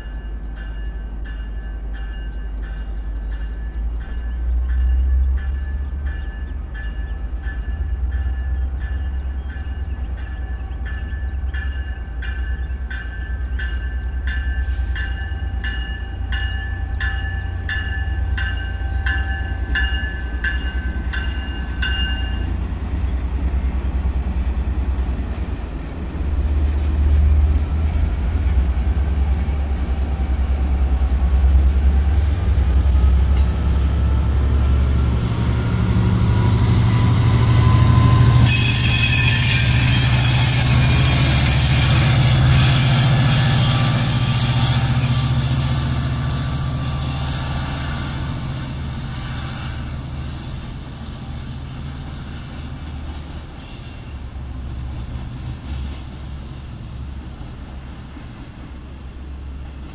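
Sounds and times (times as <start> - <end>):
diesel locomotive drone: 0.0 - 59.9
train wheel squealing: 29.2 - 56.8.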